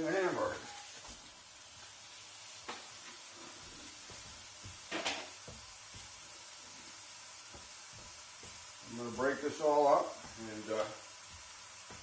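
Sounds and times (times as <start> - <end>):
meat sizzling in a skillet: 0.0 - 12.0.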